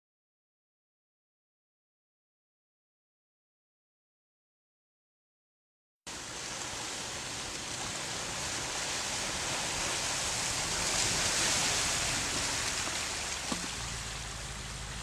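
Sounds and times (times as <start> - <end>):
wheels splashing through mud: 6.1 - 15.0.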